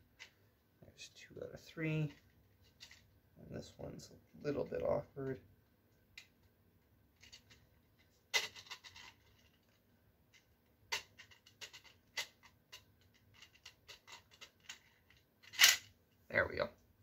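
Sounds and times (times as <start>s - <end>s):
plastic clicks and scrapes: 10.4s - 15.9s.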